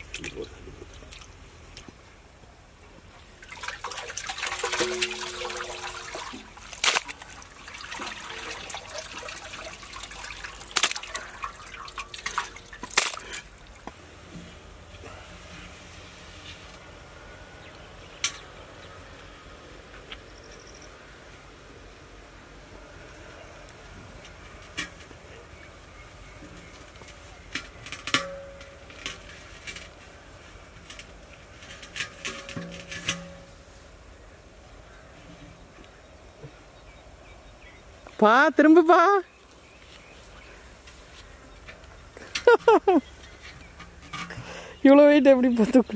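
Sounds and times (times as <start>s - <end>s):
water trickling and splashing: 3.1s - 14.3s
metal cooking pot knocking and clanking: 4.6s - 6.1s.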